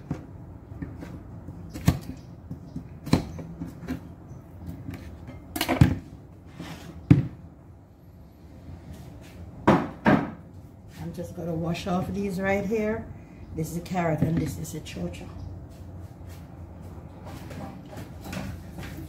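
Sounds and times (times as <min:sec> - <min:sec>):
kitchen items knocking and clunking: 0:04.7 - 0:06.1.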